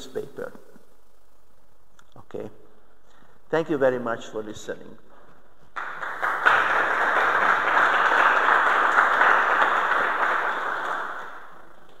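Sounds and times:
audience applauding: 5.8 - 11.9.

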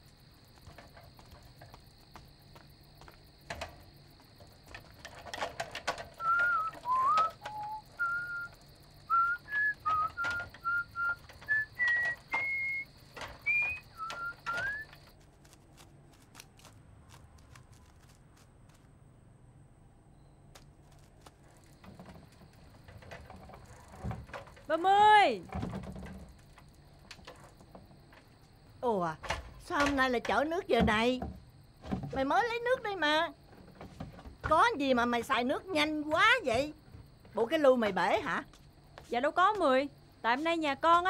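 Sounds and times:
crickets chirring: 0.0 - 41.0
scattered clicks and knocks: 0.5 - 18.8, 20.6 - 24.8, 25.4 - 28.4
person whistling a tune: 6.2 - 8.5, 9.1 - 14.9.

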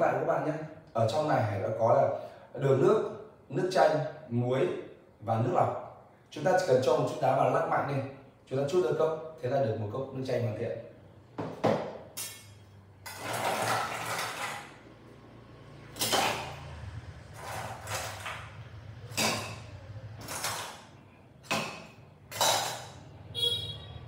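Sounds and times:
ice clinking on metal: 12.2 - 14.8, 17.4 - 18.4, 22.3 - 23.0
metal scoop scraping ice: 13.0 - 14.7, 17.3 - 18.4.

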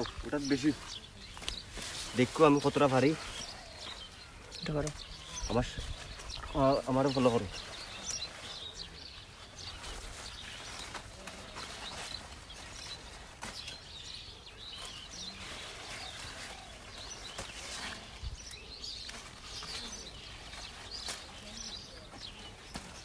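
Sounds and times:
leaves rustling: 0.0 - 23.0
stems crackling and snapping: 0.0 - 23.0.

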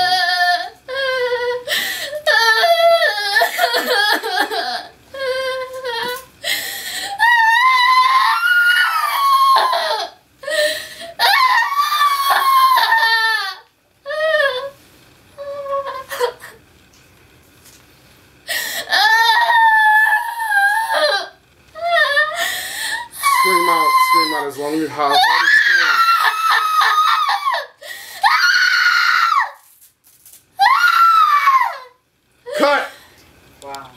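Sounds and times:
woman screaming and sobbing: 7.0 - 14.7, 18.5 - 29.6, 30.6 - 32.9.

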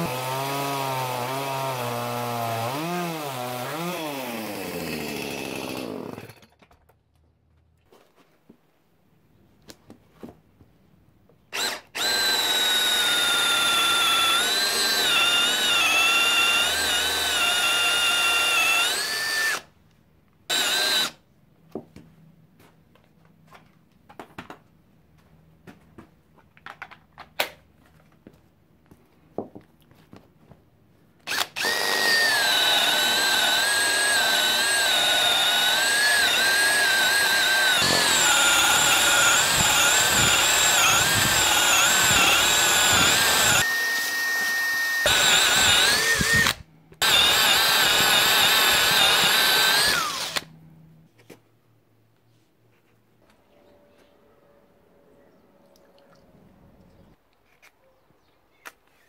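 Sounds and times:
cordless drill boring into wood: 0.0 - 6.4, 11.5 - 19.7, 20.5 - 21.2, 31.2 - 50.5.

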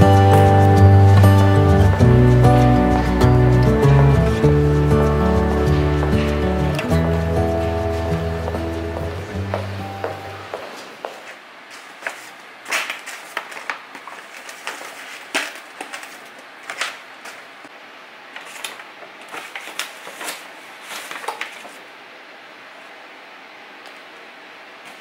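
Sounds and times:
paper bag rustling: 10.8 - 17.6, 18.3 - 21.9.

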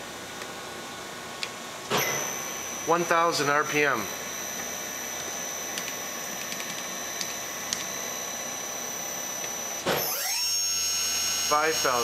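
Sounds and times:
machine spindle high-pitched whine: 1.9 - 12.0.

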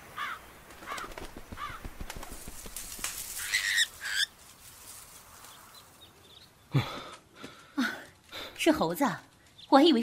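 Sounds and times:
bushes rustling and crackling: 0.0 - 10.0
monkey screeching: 3.4 - 4.3.

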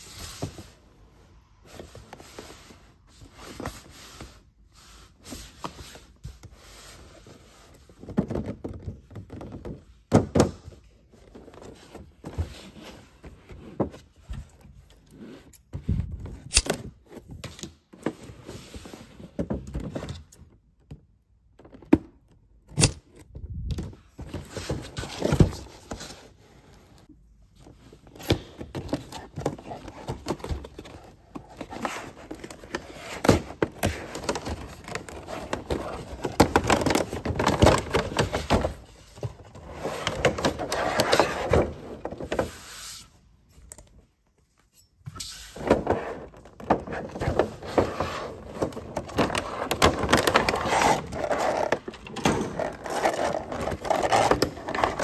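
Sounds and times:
rubbing and rustling: 45.2 - 55.0
cardboard flaps scraping: 45.4 - 55.0.

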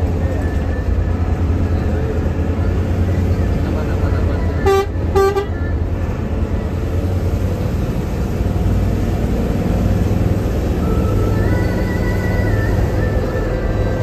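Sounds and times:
diesel bus engine rumbling: 0.0 - 14.0
road noise: 0.0 - 14.0
air horn toots: 4.6 - 5.6.

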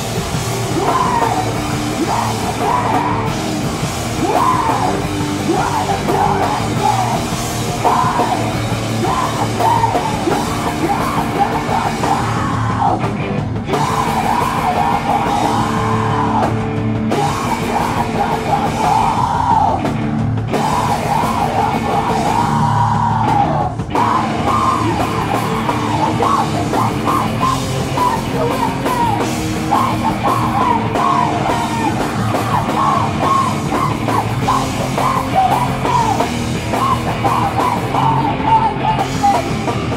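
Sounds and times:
distorted electric guitars: 0.0 - 39.9
drum kit: 0.0 - 39.9
person shouting vocals: 0.6 - 3.3, 4.2 - 13.0, 20.6 - 39.6.

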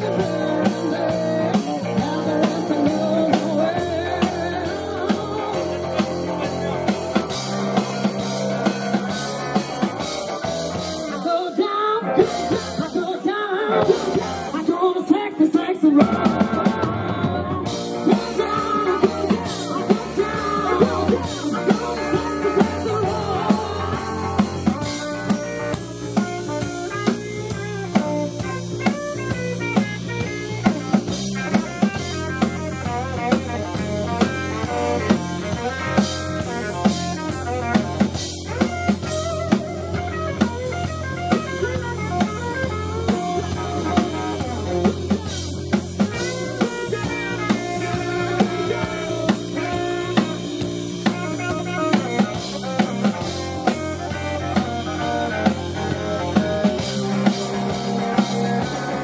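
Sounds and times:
drum kit beat: 0.0 - 11.6, 12.2 - 59.0
electric guitar: 0.0 - 59.0.

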